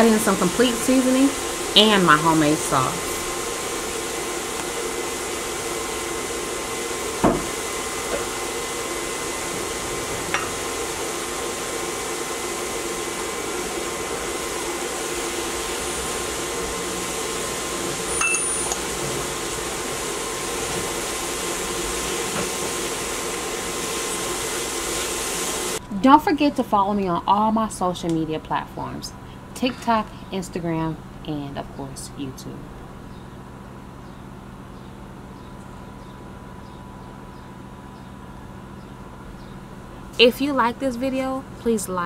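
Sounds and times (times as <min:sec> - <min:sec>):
vegetables steaming in skillet: 0:00.0 - 0:25.8
cooktop hum: 0:00.0 - 0:34.5.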